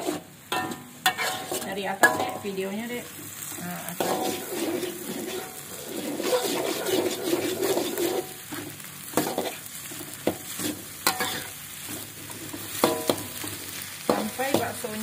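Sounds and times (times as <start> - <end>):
spatula striking pan: 0.0 - 2.5, 4.0 - 5.6, 9.1 - 9.6, 10.2 - 11.6, 12.7 - 15.0
food sizzling: 0.0 - 15.0
metal spatula scraping wok: 0.0 - 15.0.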